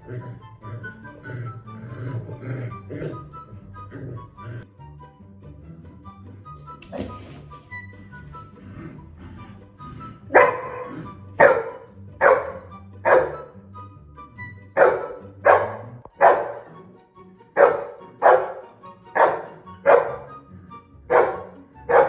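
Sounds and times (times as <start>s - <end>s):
background music: 0.0s - 22.0s
dog barking: 10.3s - 13.6s, 14.8s - 16.8s, 17.6s - 20.4s, 21.1s - 22.0s.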